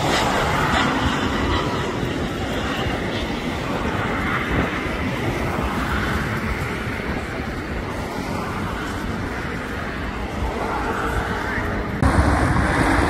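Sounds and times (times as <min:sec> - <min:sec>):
road traffic roaring past: 0:09.0 - 0:13.0.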